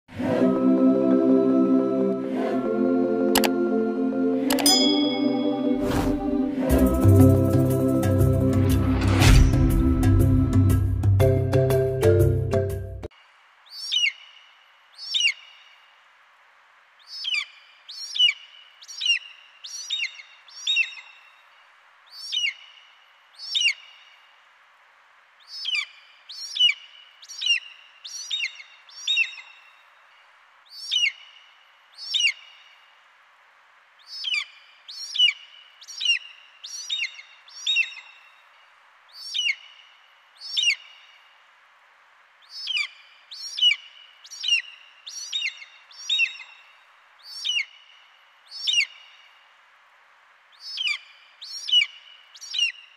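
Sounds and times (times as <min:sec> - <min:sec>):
faint steady hiss: 0:13.1 - 0:52.9
eagle high piping calls: 0:13.8 - 0:14.2, 0:15.0 - 0:15.4, 0:17.1 - 0:21.0, 0:23.5 - 0:23.8, 0:25.5 - 0:29.5, 0:32.0 - 0:32.4, 0:34.1 - 0:38.1, 0:39.2 - 0:39.7, 0:40.4 - 0:40.9, 0:42.5 - 0:46.6, 0:47.2 - 0:47.8, 0:48.5 - 0:49.0, 0:50.6 - 0:52.8.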